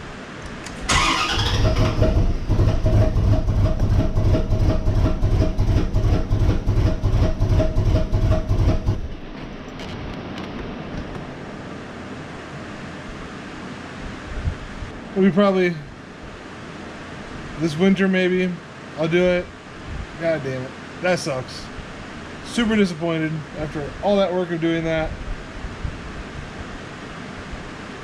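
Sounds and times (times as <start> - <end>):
car engine cranking: 0.6 - 9.1.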